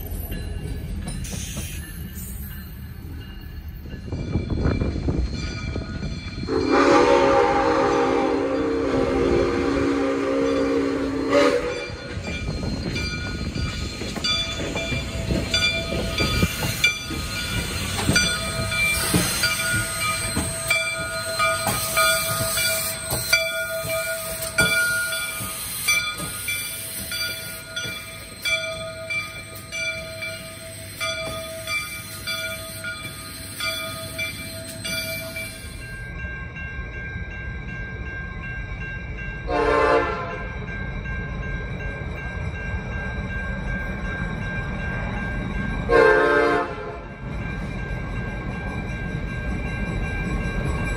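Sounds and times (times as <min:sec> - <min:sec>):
diesel locomotive approaching: 0:00.0 - 0:50.9
steam locomotive exhaust chuffs: 0:04.2 - 0:36.0
locomotive horn blast: 0:06.5 - 0:12.0, 0:39.5 - 0:40.4, 0:45.9 - 0:47.1.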